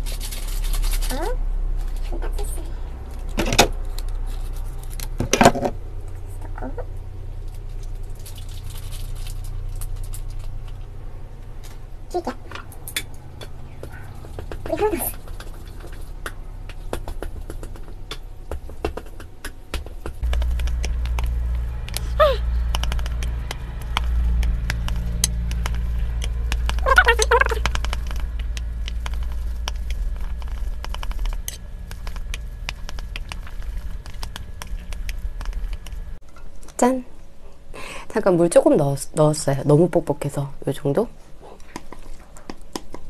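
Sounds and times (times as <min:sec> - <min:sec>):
steady low hum: 0:00.0 - 0:43.0
chopsticks stirring noodles: 0:20.2 - 0:36.1
person humming: 0:22.0 - 0:22.6.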